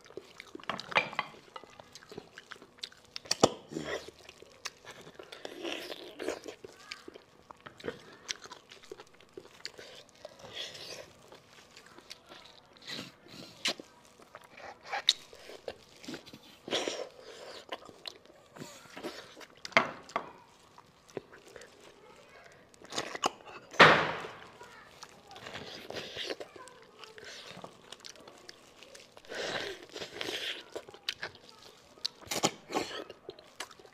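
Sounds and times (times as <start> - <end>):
chewing and slurping bones: 0.0 - 33.9.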